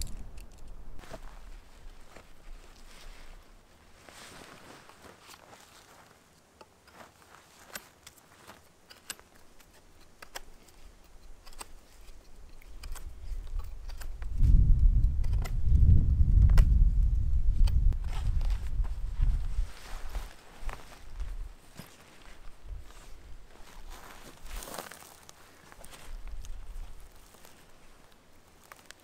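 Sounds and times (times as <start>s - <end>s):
canvas tent handling: 1.0s - 9.8s, 18.0s - 27.9s
wind rumble on microphone: 12.8s - 21.6s.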